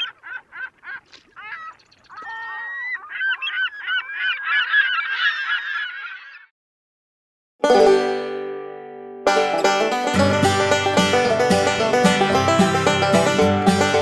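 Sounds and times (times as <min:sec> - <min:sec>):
geese honking: 0:00.0 - 0:06.5.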